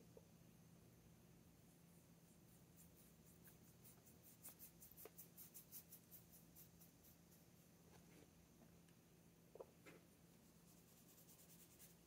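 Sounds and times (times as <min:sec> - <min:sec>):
paintbrush swishing on paper: 0:01.6 - 0:08.3, 0:10.3 - 0:12.0.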